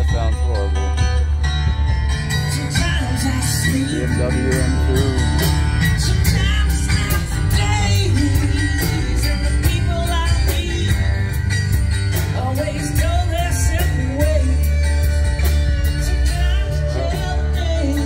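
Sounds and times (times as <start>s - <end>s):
bass line: 0.0s - 18.0s
guitar: 0.0s - 18.0s
steady drum beat: 0.0s - 18.0s
person singing: 2.4s - 18.0s.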